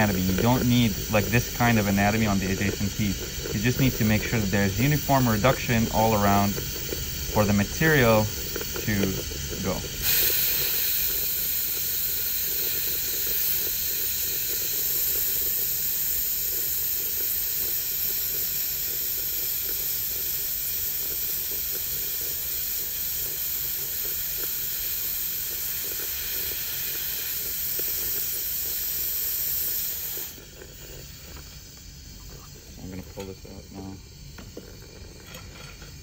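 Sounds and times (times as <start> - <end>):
dental handpiece hissing and buzzing: 0.0 - 36.0.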